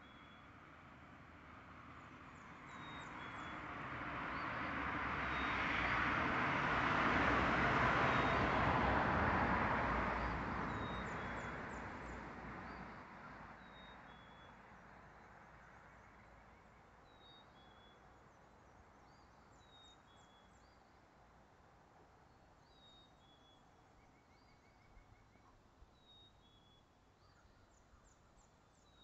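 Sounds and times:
vehicle driving past: 0:00.8 - 0:13.2
faint bird chirps: 0:12.6 - 0:21.0, 0:22.3 - 0:29.0.

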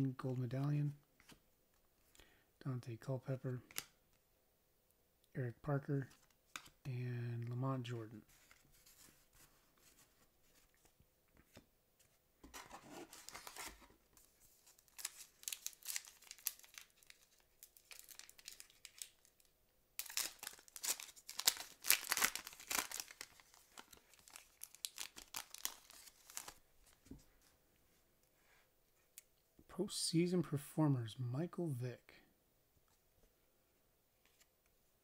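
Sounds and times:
foil wrapper tearing and crinkling: 0:14.8 - 0:19.3, 0:20.0 - 0:26.6.

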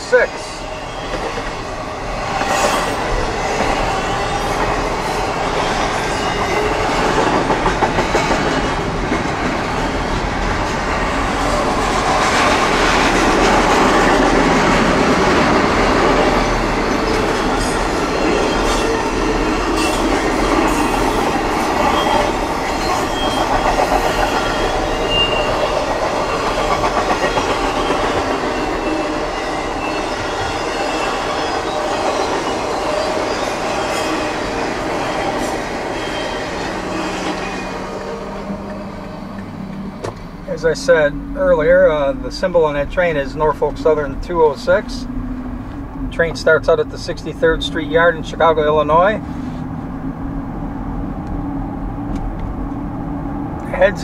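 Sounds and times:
freight train rumbling past: 0:00.0 - 0:54.0
wheels clacking over rail joints: 0:00.9 - 0:40.4.

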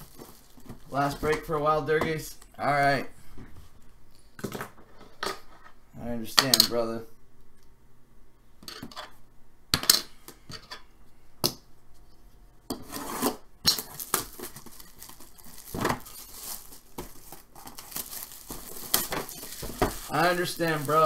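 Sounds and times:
plastic bag rustling: 0:00.0 - 0:01.6, 0:13.7 - 0:21.0
cardboard scraping and rustling: 0:12.8 - 0:21.0.

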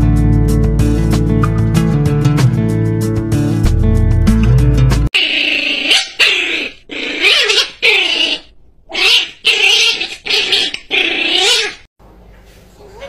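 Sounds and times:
guitar music: 0:00.0 - 0:05.1
small dog whining: 0:05.2 - 0:11.9, 0:12.7 - 0:13.0.

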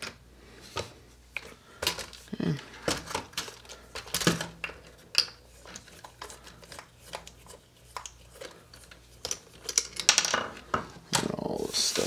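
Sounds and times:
plastic parts clicking and knocking: 0:00.8 - 0:02.2, 0:02.8 - 0:07.3, 0:07.9 - 0:11.3.

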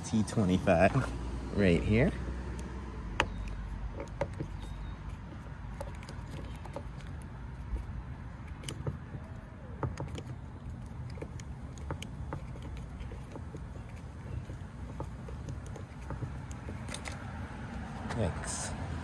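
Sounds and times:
key clicking and tapping on screw: 0:02.5 - 0:17.3.

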